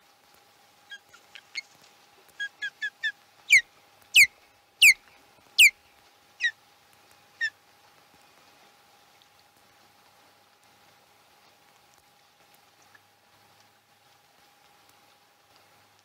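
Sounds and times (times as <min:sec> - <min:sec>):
osprey chirps: 0:02.4 - 0:03.6, 0:04.2 - 0:05.0
osprey whistled calls: 0:02.4 - 0:03.6, 0:04.2 - 0:05.0.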